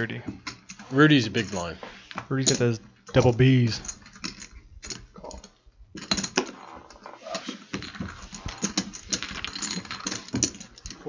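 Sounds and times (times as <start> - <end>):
clay poker chips clicking: 3.8 - 11.0.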